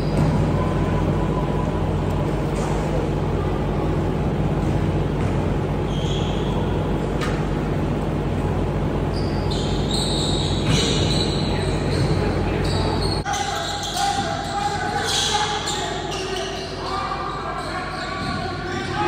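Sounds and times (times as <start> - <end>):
sneaker squeaks on hardwood floor: 0.0 - 0.7, 5.2 - 6.8, 9.1 - 18.8
large fan running: 0.0 - 19.0.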